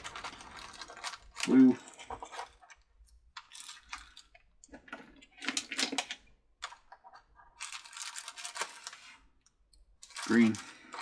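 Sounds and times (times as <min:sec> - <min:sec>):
plastic bags crinkling: 0:00.0 - 0:02.8, 0:03.4 - 0:06.2, 0:07.5 - 0:09.2, 0:10.0 - 0:11.0.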